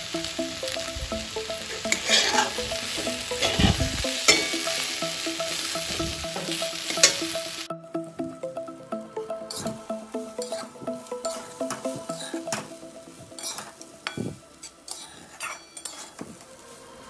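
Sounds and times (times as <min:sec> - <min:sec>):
vegetables sizzling in a pan: 0:00.0 - 0:07.7, 0:09.5 - 0:17.0
metal spatula scraping pan: 0:01.9 - 0:02.6, 0:13.4 - 0:16.3.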